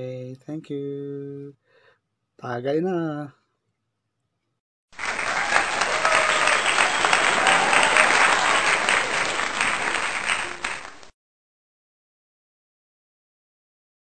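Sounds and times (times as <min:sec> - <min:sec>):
crowd applause: 0:05.0 - 0:11.1.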